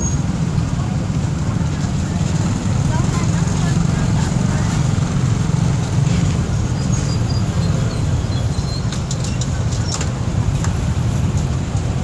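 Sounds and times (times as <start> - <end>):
dense traffic rumble: 0.0 - 12.0.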